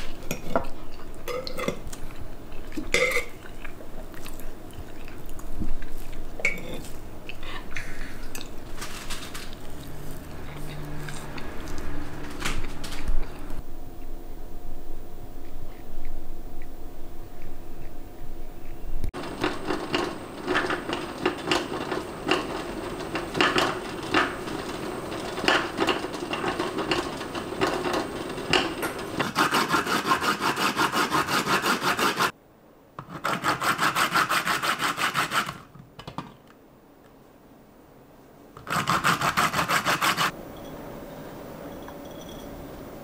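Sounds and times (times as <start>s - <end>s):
peel rasping on a grater: 29.2s - 32.3s, 33.1s - 35.6s, 38.6s - 40.3s.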